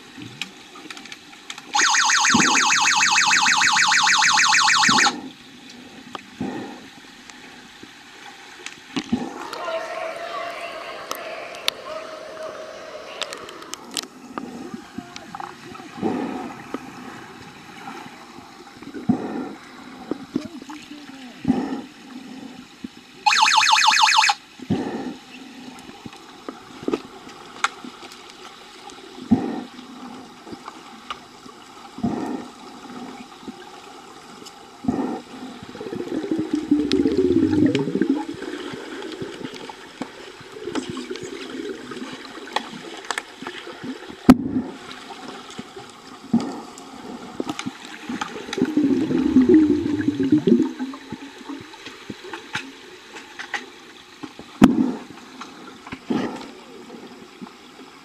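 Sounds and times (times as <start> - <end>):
water sloshing and bubbling: 0.0 - 58.0.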